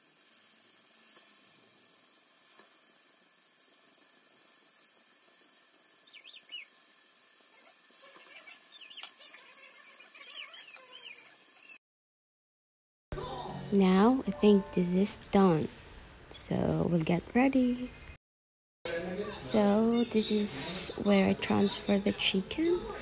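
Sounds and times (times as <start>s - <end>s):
chicken sizzling in oil: 0.0s - 11.8s
chirping bird calls: 6.0s - 6.8s, 7.6s - 11.8s.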